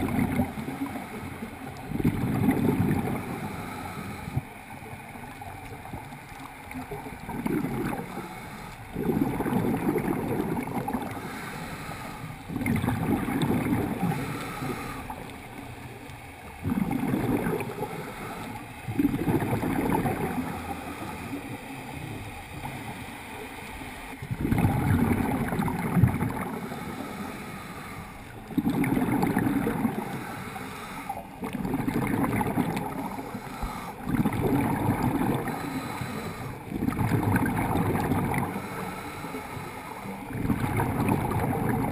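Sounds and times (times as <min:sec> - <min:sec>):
underwater exhaled bubbles gurgling: 0:00.0 - 0:41.9.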